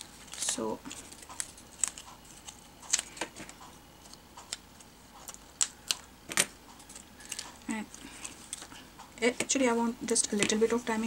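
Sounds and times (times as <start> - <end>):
paper rustling: 0.0 - 4.2, 6.8 - 8.8.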